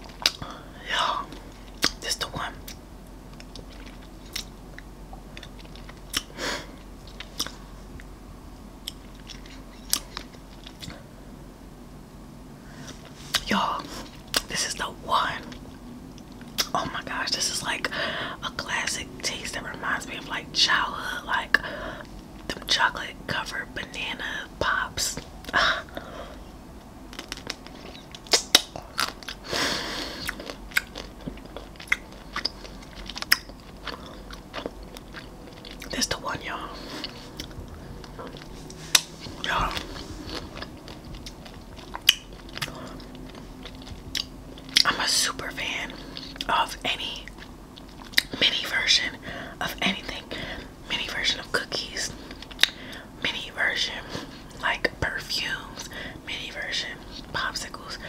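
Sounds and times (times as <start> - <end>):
chewing: 2.7 - 6.4, 7.0 - 8.1, 8.8 - 11.0, 27.1 - 45.2, 45.8 - 46.6, 47.2 - 48.5.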